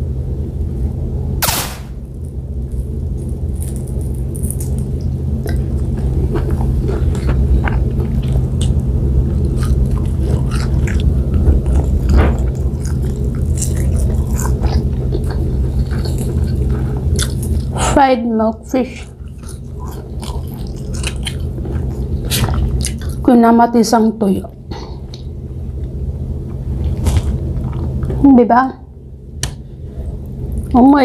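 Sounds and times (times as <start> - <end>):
low hum: 0.0 - 31.0
crisp crunches: 2.7 - 5.1
chewing and mouth noises: 2.8 - 17.9, 18.8 - 23.3, 24.5 - 28.2.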